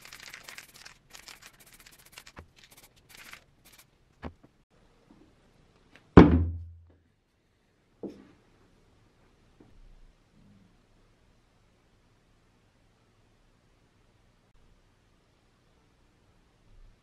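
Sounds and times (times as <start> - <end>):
scratchy rustling and scraping: 0.0 - 4.5.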